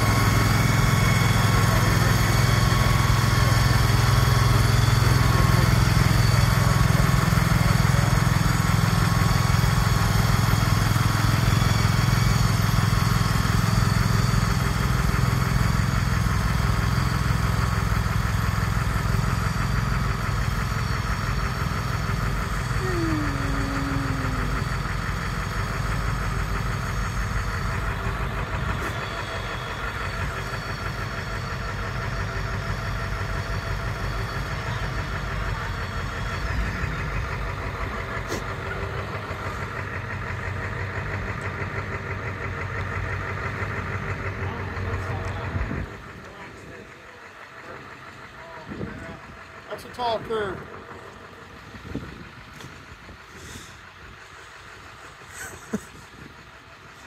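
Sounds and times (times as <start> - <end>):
machine engine humming: 0.0 - 57.0
short falling whine: 20.1 - 38.0.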